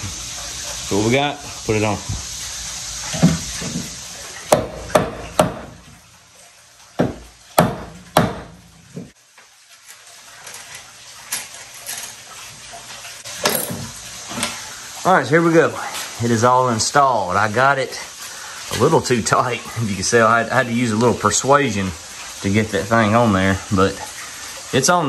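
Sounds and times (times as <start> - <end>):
hammer knocking on metal plate: 7.0 - 9.1.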